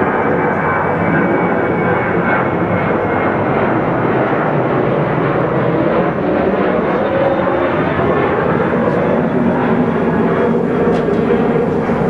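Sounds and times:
jet airliner roar: 0.0 - 12.0.

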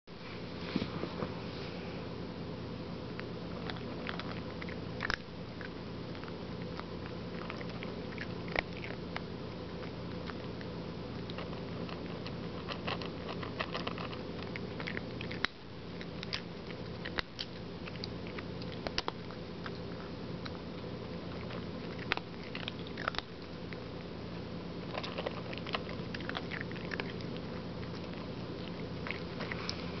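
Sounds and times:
steady low hum: 0.1 - 30.0
cat chewing dry kibble: 3.0 - 30.0.

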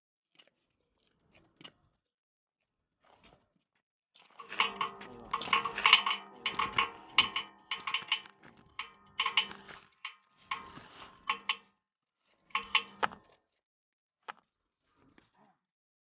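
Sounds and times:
hammer tapping on steel: 4.4 - 9.8, 12.6 - 13.2.

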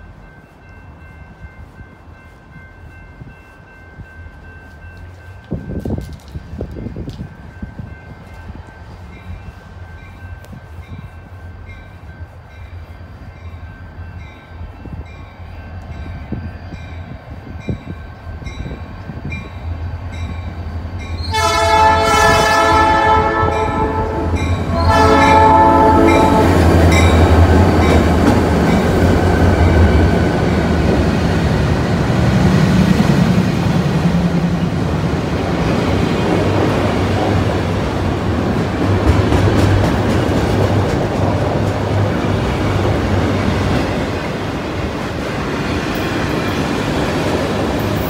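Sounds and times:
train wheels rolling past: 0.0 - 48.0
train air horn: 21.2 - 27.0.

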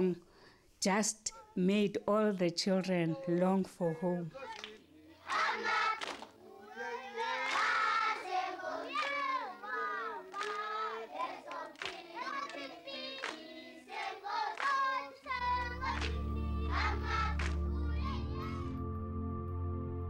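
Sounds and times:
hand claps: 4.5 - 6.4, 7.4 - 7.9, 8.9 - 9.5, 10.3 - 15.0, 15.7 - 17.8
children singing together: 5.2 - 18.8
low sustained music bed: 15.3 - 20.0.

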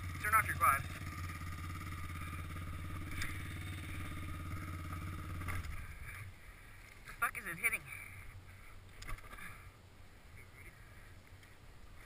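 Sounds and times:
quad engine idling: 0.0 - 6.6.

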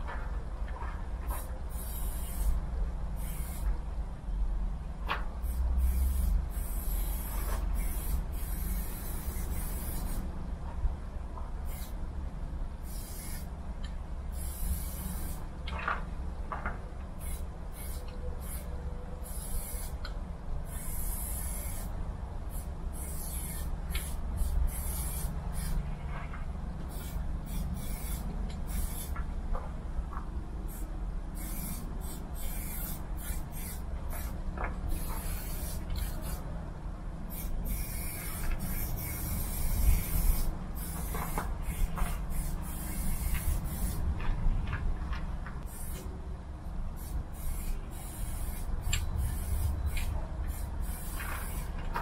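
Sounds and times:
low steady rumble: 0.0 - 52.0
spray-paint can hissing: 1.3 - 2.6, 3.2 - 3.7, 5.4 - 10.2, 11.7 - 12.0, 12.8 - 13.5, 14.3 - 15.4, 17.2 - 20.0, 20.6 - 21.9, 22.5 - 25.8, 26.9 - 29.2, 30.7 - 36.4, 37.3 - 44.0, 45.7 - 46.0, 47.0 - 51.8.

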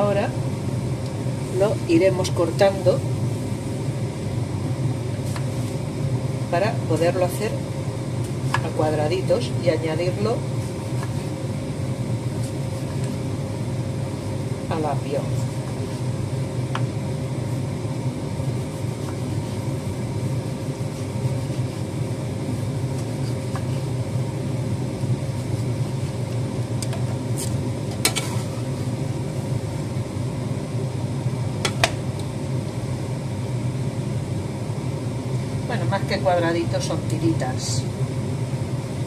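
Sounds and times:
kitchen appliance humming: 0.0 - 35.9.

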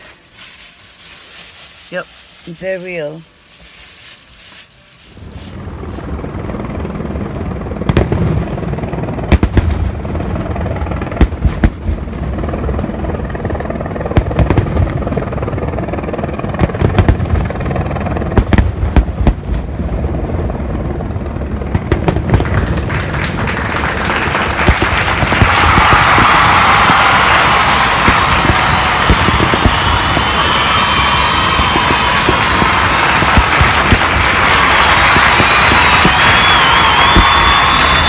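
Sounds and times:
dense crackling hiss: 0.0 - 6.4, 22.4 - 38.0
firework bangs: 0.0 - 13.2, 14.1 - 15.6, 16.4 - 38.0
low rumble: 5.1 - 38.0.

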